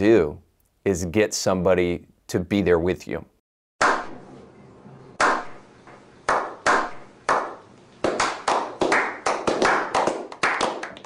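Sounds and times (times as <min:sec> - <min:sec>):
men clapping: 0:06.3 - 0:11.0.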